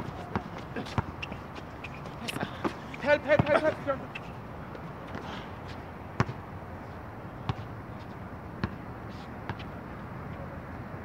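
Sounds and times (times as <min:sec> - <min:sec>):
basketball bouncing on court: 0:02.6 - 0:04.2.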